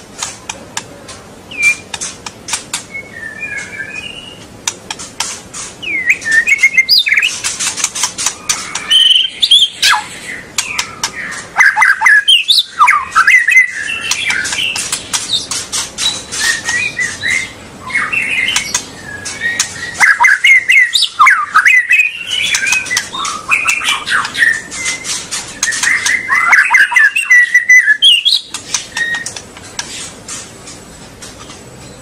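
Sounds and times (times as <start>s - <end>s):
sharp bird clicking notes: 0.2s - 2.9s, 4.6s - 17.1s, 18.3s - 31.6s
bird singing whistled phrases: 1.5s - 1.9s, 2.9s - 4.4s, 5.8s - 7.4s, 8.5s - 10.9s, 11.6s - 14.8s, 16.0s - 29.4s.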